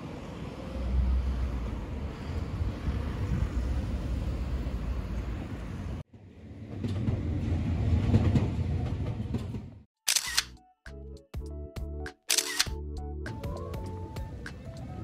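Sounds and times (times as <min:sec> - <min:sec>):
train rumbling and clacking: 0:00.0 - 0:09.9
sharp click: 0:12.3 - 0:12.8.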